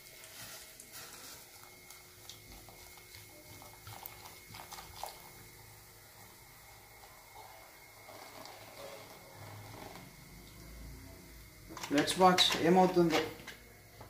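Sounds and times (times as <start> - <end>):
cola pouring into steel bowl: 0.0 - 10.8.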